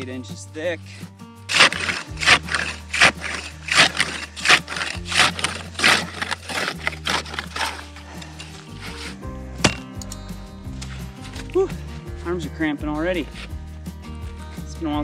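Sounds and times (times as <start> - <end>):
low steady background music: 0.0 - 15.0
ice saw scraping through ice: 1.5 - 9.2.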